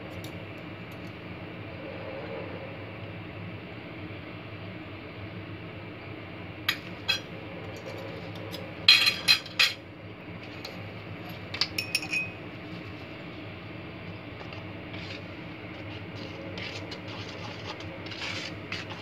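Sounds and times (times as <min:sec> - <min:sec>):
steady background hum: 0:00.0 - 0:19.0
metal utensil clinking on dishware: 0:11.6 - 0:12.4.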